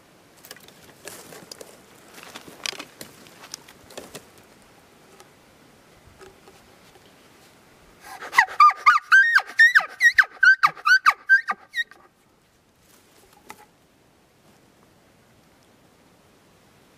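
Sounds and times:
elk call mews and chirps: 8.1 - 12.1.

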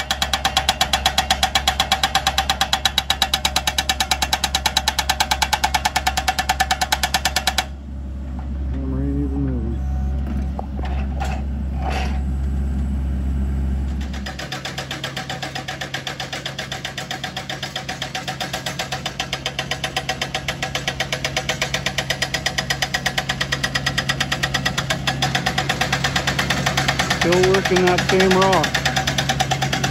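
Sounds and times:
hydraulic hammer pounding rock: 0.0 - 7.8, 13.9 - 29.9
excavator engine running: 0.0 - 29.9.

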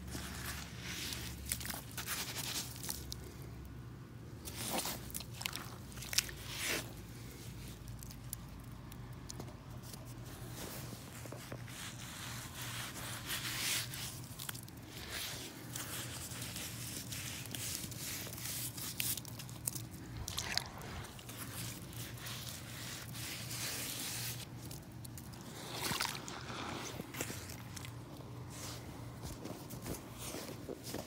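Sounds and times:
boots squelching in mud: 4.4 - 6.9, 13.8 - 31.0.

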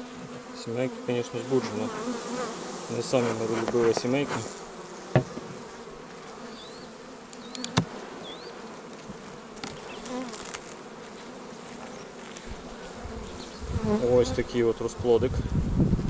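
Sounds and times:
honeybee colony buzzing: 0.0 - 16.0
sharp knock: 5.1 - 5.5.

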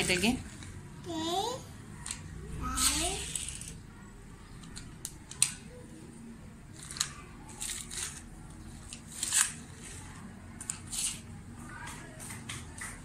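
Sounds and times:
toy cars clicking and scraping: 2.0 - 3.9, 4.5 - 5.7, 6.7 - 13.0.

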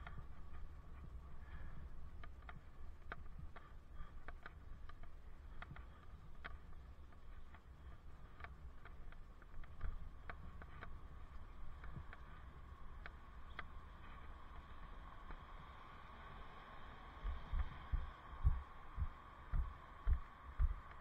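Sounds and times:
light clicks and rattles: 0.0 - 15.5
wind: 0.0 - 21.0.

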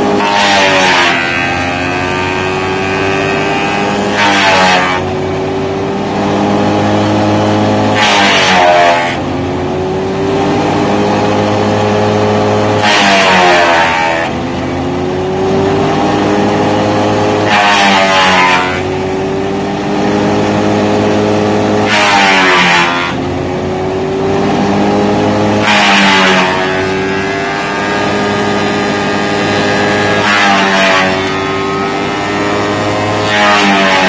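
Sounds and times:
chipper chipping wood: 0.0 - 34.0
wood chipper engine running: 0.0 - 34.0.

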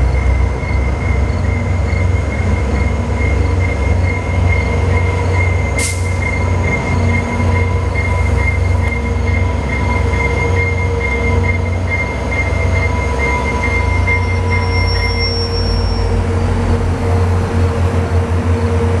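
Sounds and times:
diesel locomotive engine drone: 0.0 - 19.0
thin high squeal: 10.2 - 16.2.

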